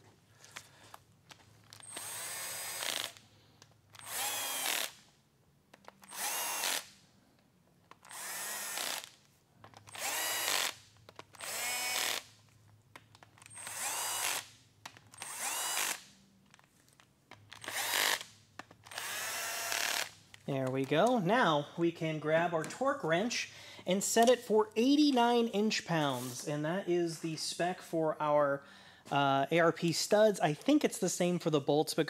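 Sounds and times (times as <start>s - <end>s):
cordless drill running: 1.8s - 3.2s, 3.9s - 5.0s, 6.0s - 7.0s, 8.0s - 9.2s, 9.8s - 12.3s, 13.4s - 16.1s, 17.6s - 20.2s.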